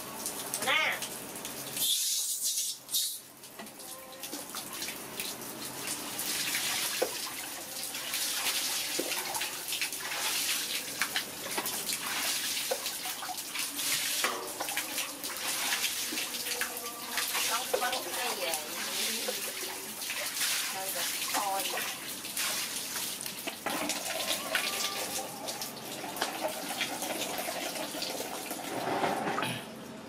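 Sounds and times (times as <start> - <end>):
water dripping and trickling: 0.0 - 28.9
water pouring and splashing: 0.0 - 29.4
dipper scooping water from basin: 5.7 - 29.5.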